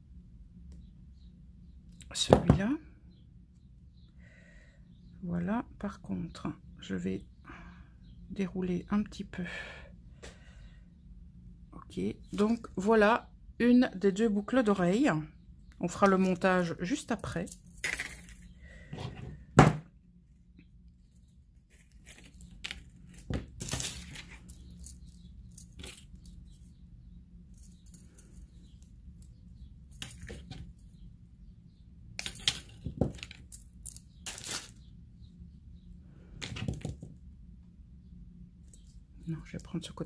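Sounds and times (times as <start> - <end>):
low steady hum: 0.0 - 40.0
pliers and wire clicking: 21.7 - 26.7, 27.5 - 31.0, 32.2 - 34.8.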